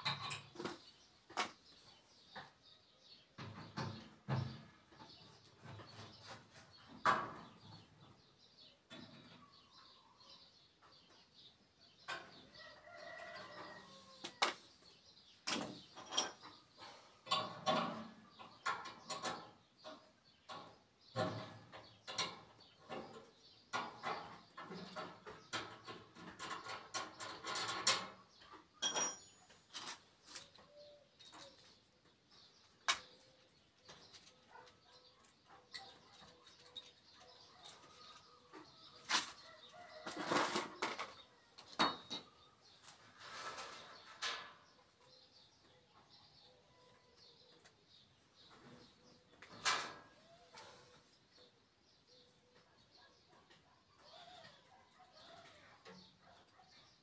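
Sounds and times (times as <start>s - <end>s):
wrench and pliers on metal: 0.0s - 0.8s, 15.5s - 16.6s, 28.8s - 30.1s, 40.0s - 42.4s.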